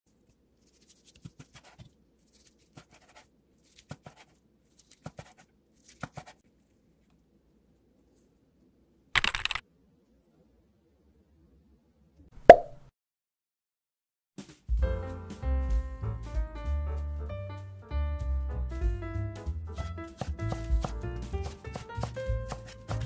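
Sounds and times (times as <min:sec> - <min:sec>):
knife slicing through seaweed roll: 0:00.6 - 0:06.4, 0:20.2 - 0:23.0
knife tapping cutting board: 0:20.2 - 0:23.0.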